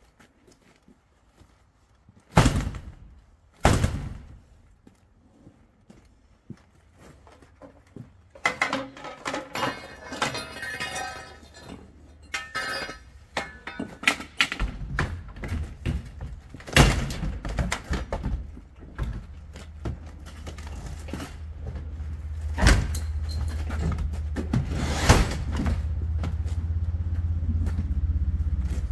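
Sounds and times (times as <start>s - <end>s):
axe striking metal garage door: 2.3s - 3.0s, 3.6s - 4.3s, 8.4s - 16.0s, 16.6s - 18.2s, 22.5s - 25.9s
low rumble: 25.4s - 28.9s.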